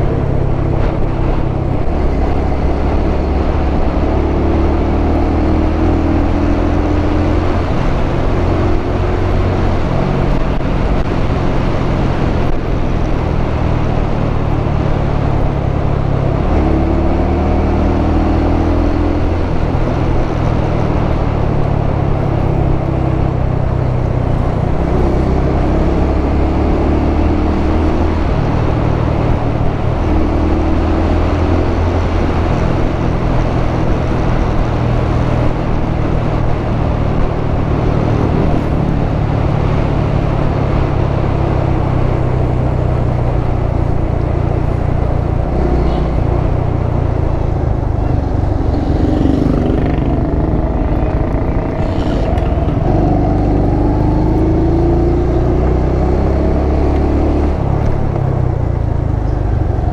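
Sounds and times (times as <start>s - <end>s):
wind on microphone: 27.4s - 59.9s
motorcycle engine running: 35.3s - 56.6s.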